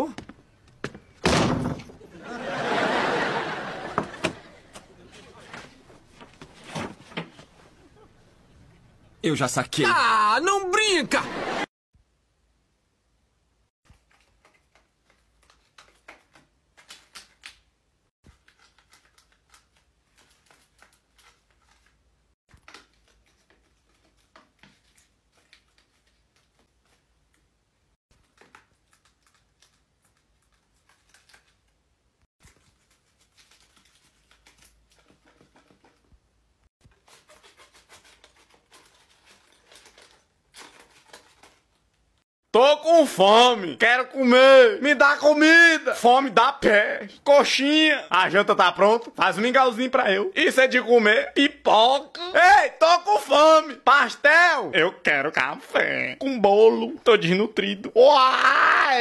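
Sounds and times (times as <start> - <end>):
paper crinkling and rustling: 4.3 - 7.8, 13.9 - 17.6, 18.2 - 27.5, 28.1 - 31.8, 32.4 - 36.2, 36.8 - 42.2.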